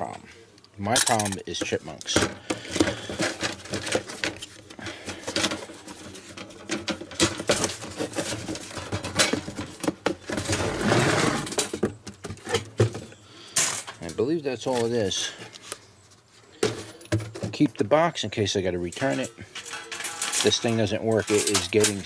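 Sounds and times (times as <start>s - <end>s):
cardboard rubbing and scraping: 7.5s - 9.2s, 10.2s - 11.5s
wire cage rattling and clicking: 18.9s - 22.0s.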